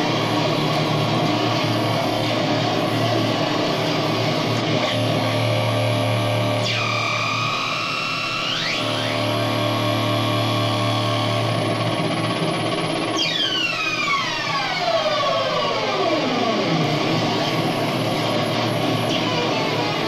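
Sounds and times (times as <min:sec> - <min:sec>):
electronic drone: 0:00.0 - 0:20.0
falling siren sweep: 0:13.0 - 0:17.4.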